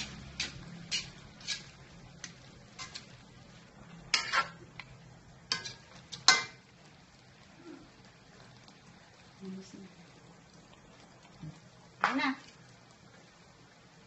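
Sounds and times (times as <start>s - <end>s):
wooden spatula scraping a pan: 0.0s - 3.2s, 4.1s - 4.6s.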